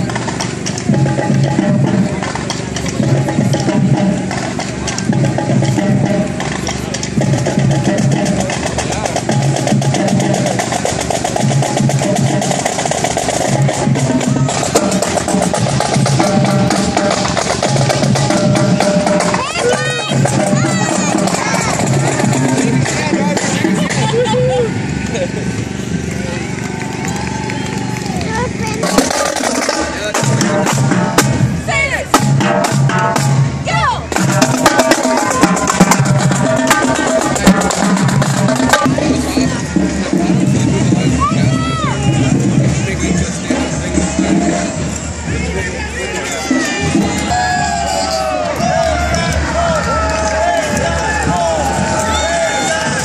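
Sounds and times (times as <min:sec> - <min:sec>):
held musical tone: 0:00.0 - 0:26.6, 0:28.2 - 0:53.0
lower drums: 0:00.0 - 0:53.0
snare drum strokes: 0:28.8 - 0:41.2.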